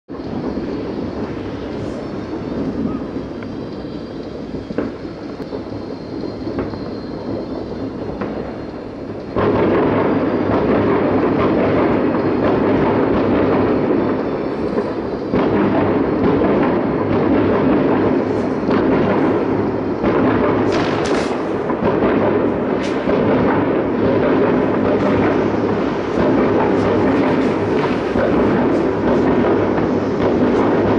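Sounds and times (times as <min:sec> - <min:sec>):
distant fireworks rumble: 0:00.1 - 0:30.9
firework bangs and crackles: 0:00.1 - 0:30.9.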